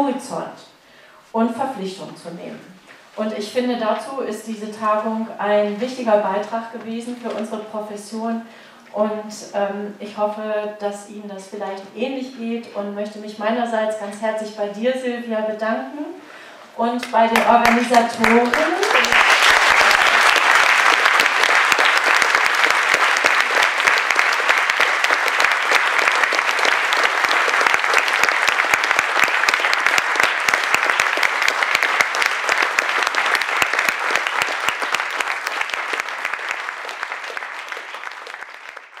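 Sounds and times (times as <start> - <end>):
audience applauding: 17.4 - 39.0.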